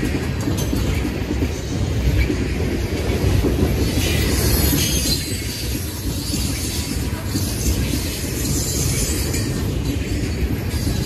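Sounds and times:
freight train rumbling past: 0.0 - 11.0
train wheels clattering on rails: 0.0 - 11.0.

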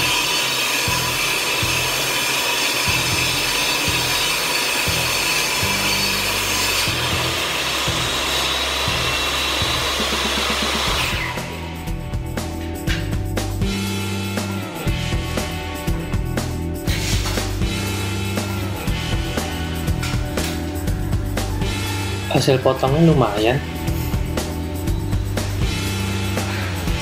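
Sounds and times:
saw blade spinning down: 0.0 - 11.6
table saw ripping wood: 0.0 - 11.6, 16.8 - 20.8, 25.5 - 27.0.

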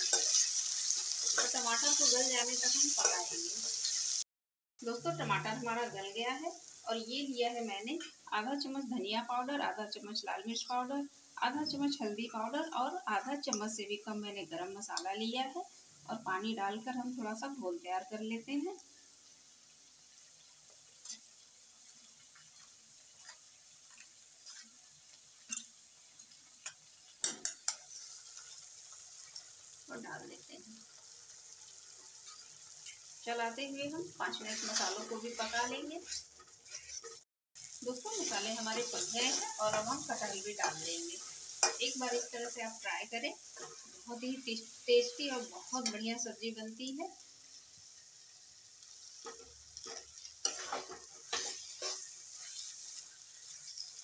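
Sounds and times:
metal spatula scraping pan: 0.0 - 4.0, 23.2 - 24.8, 34.3 - 37.2, 38.1 - 42.3, 43.5 - 44.1, 49.2 - 54.0
food sizzling in a pan: 0.0 - 54.0
spoon scraping bowl: 34.4 - 37.2.

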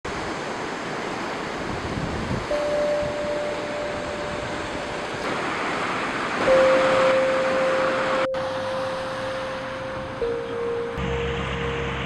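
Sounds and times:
ocean surf rushing: 0.1 - 12.0
long held musical note: 6.4 - 12.0.

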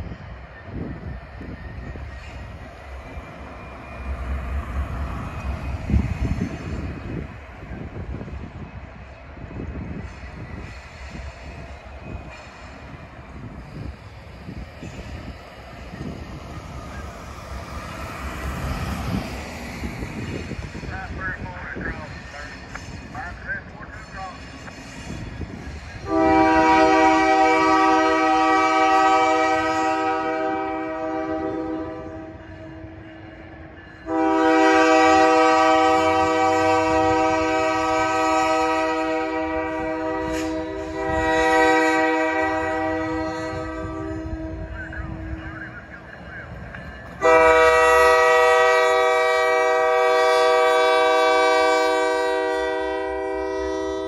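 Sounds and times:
locomotive air horn: 26.0 - 33.0, 34.0 - 45.4, 47.2 - 54.0.

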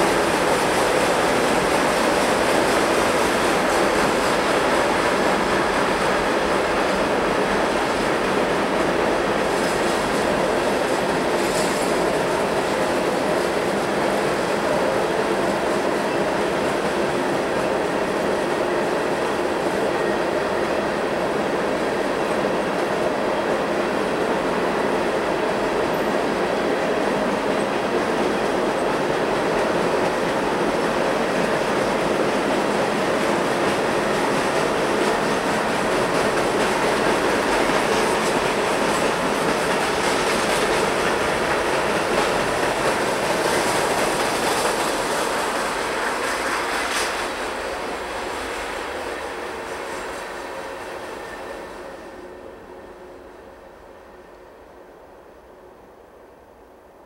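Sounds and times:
freight train wheels rumbling on rails: 0.0 - 56.3.

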